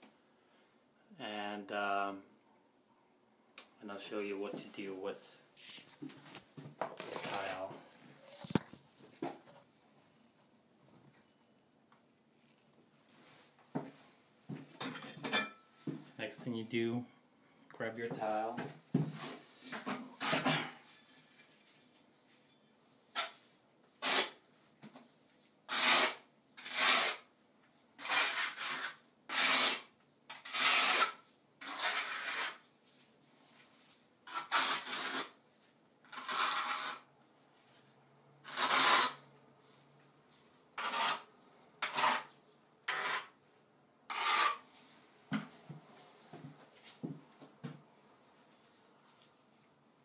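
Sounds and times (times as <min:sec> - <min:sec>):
trowel scraping mortar: 0:24.0 - 0:24.4, 0:25.7 - 0:27.3, 0:28.0 - 0:32.7, 0:34.2 - 0:35.4, 0:36.0 - 0:37.1, 0:38.4 - 0:39.2, 0:40.8 - 0:43.4, 0:44.1 - 0:44.7.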